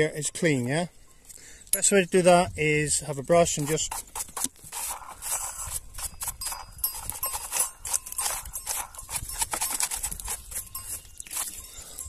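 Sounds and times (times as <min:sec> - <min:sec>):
stiff brush scrubbing: 0:02.9 - 0:12.0.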